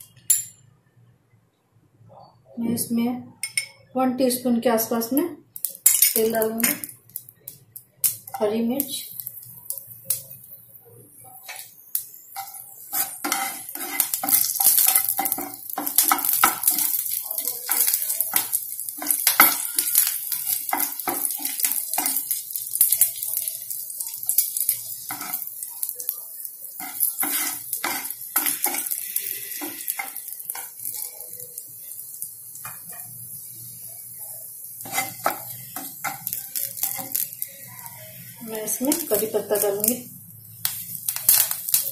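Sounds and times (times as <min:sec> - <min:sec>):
chillies sizzling in hot oil: 0:05.0 - 0:41.9
spatula scraping and knocking pan: 0:12.4 - 0:22.4, 0:24.3 - 0:25.5, 0:26.8 - 0:31.0, 0:34.8 - 0:37.4.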